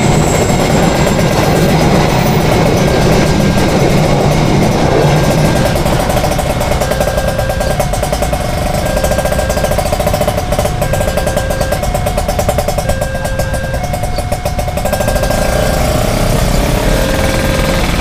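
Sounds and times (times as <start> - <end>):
high steady tone: 0.0 - 18.0
train rumbling: 0.0 - 18.0
level crossing bell ringing: 4.3 - 18.0.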